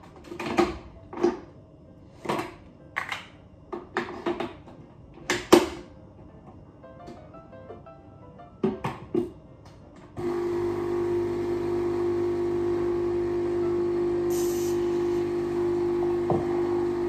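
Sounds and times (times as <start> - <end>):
coffee machine pump humming: 10.2 - 17.0
short hiss: 14.3 - 14.9.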